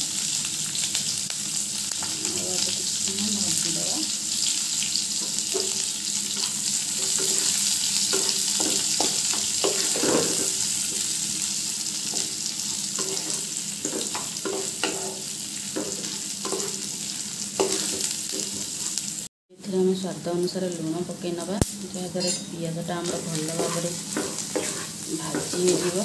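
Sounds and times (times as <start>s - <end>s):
onions sizzling in hot oil: 0.0s - 26.0s
spatula scraping a pan: 5.2s - 11.1s, 12.0s - 17.0s, 17.6s - 19.0s, 22.2s - 26.0s.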